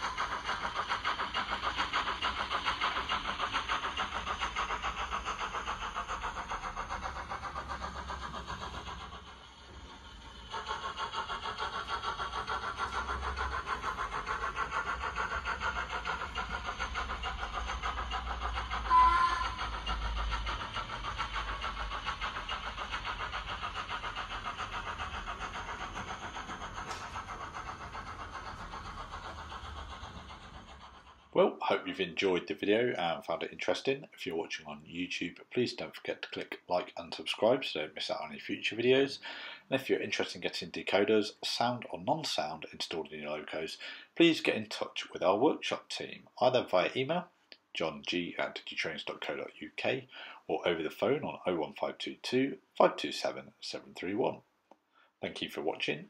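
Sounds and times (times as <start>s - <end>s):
steam locomotive chuffing: 0.0s - 56.0s
train whistle: 18.8s - 19.7s.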